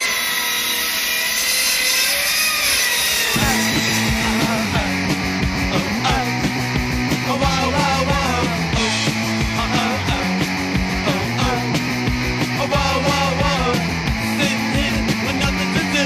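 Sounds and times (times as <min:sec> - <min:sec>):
chainsaw running: 0:00.0 - 0:16.0
punk rock band: 0:03.3 - 0:16.0.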